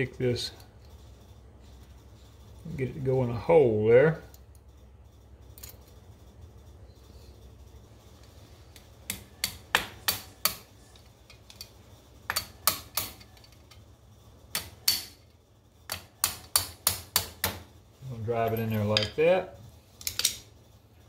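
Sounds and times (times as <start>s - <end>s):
small hammer tapping metal: 8.8s - 10.7s, 12.3s - 13.6s, 14.5s - 15.2s, 15.9s - 17.6s.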